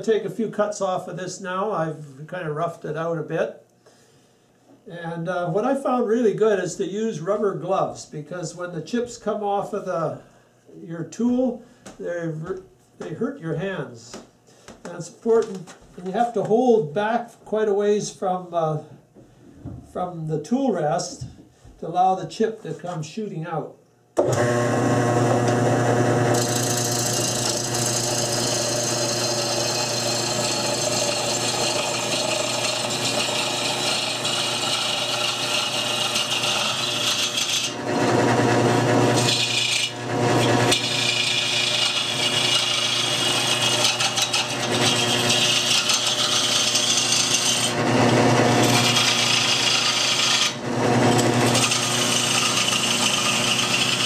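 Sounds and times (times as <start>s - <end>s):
lathe motor hum: 24.2s - 54.0s.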